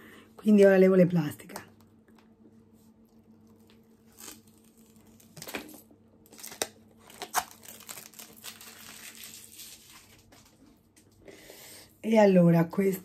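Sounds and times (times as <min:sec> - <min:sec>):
plastic film crinkling: 0:03.0 - 0:11.0.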